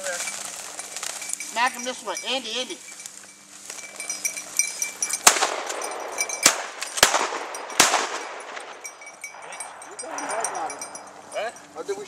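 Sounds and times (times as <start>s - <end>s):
shotgun shots: 5.2s - 8.8s.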